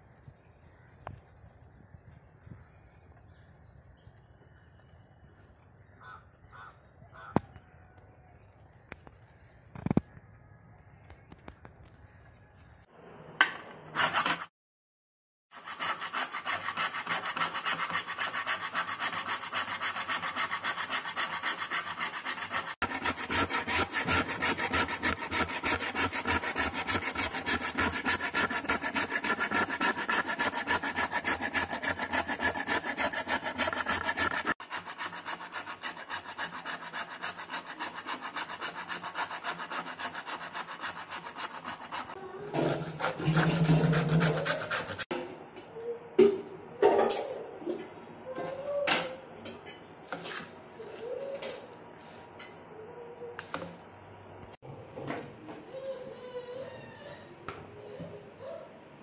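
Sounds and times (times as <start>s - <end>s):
grater scraping: 14.0s - 14.5s, 15.6s - 45.1s.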